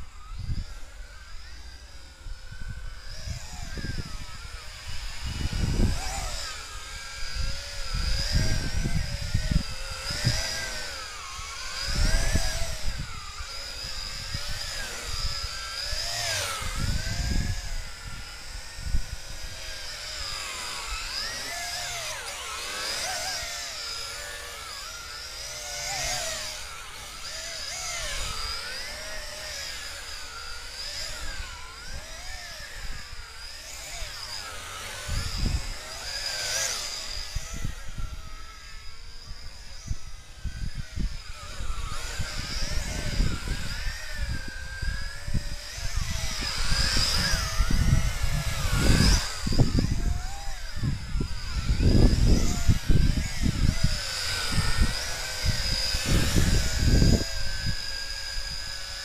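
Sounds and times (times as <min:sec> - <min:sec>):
drone propellers whining: 0:00.0 - 0:59.0
wind gusts buffeting microphone: 0:02.4 - 0:06.5, 0:07.1 - 0:11.0, 0:11.6 - 0:21.3, 0:39.8 - 0:58.6.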